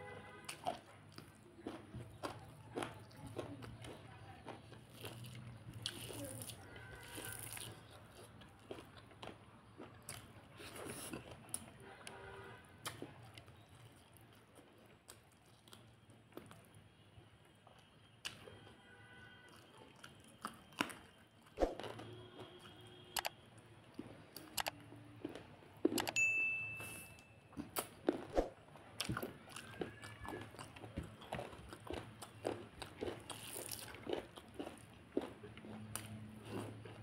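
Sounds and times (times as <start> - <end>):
chewing and mouth smacks: 0.5 - 11.7, 12.8 - 16.7, 27.5 - 37.0
notification ding: 26.2 - 27.4.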